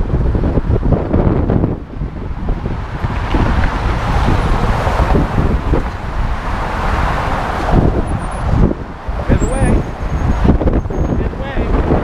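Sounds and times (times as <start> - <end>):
wind buffeting microphone: 0.0 - 12.0
car passing close by: 2.4 - 10.7.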